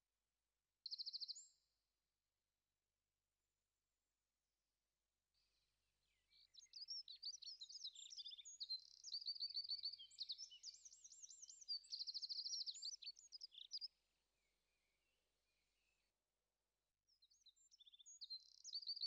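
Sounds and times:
songbird singing with trills: 0.8s - 1.6s, 6.0s - 16.2s, 17.1s - 19.0s.

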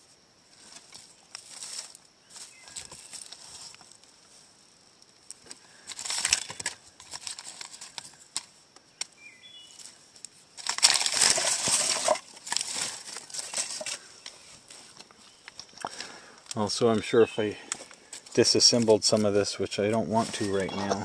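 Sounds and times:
hand rustling through wood chips: 0.6s - 4.0s, 10.6s - 15.0s, 18.2s - 21.0s.

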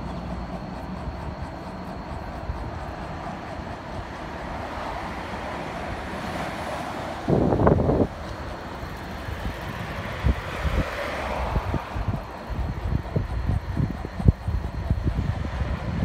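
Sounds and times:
road noise: 0.0s - 16.0s
wind on microphone: 5.8s - 16.0s.

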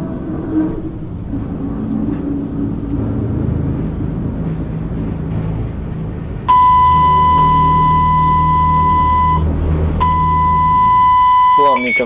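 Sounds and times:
locomotive cab rumble: 0.0s - 12.0s
high electronic warning beep: 6.5s - 9.4s, 10.0s - 12.0s.

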